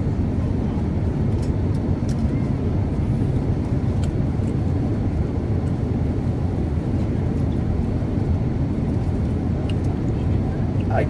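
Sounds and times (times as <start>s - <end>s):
aircraft cabin rumble: 0.0s - 11.0s.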